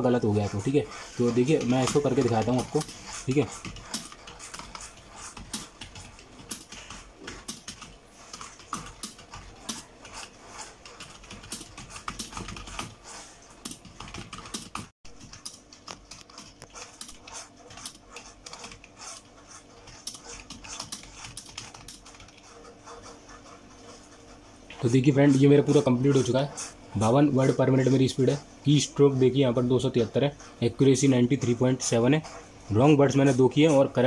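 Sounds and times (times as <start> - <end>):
fast typing on keyboard: 0.2 - 23.5.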